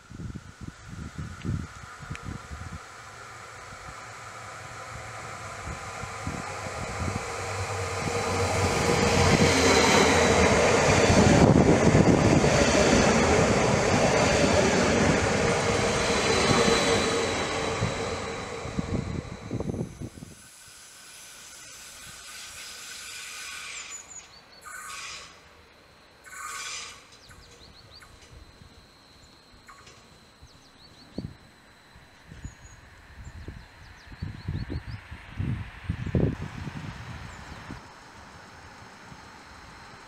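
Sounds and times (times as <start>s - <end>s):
faint outdoor background: 0.0s - 40.0s
train high whine: 0.0s - 40.0s
train wheels rumbling on rails: 1.0s - 20.5s.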